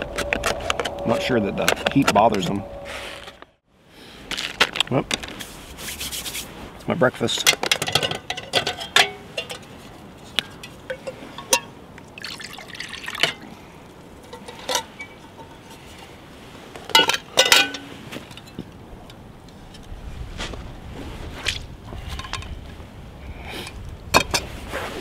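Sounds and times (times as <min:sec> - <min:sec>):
metal cookware clinking and clattering: 0:07.6 - 0:09.7, 0:14.3 - 0:15.6, 0:16.9 - 0:17.8
water sloshing in pot: 0:12.2 - 0:13.5.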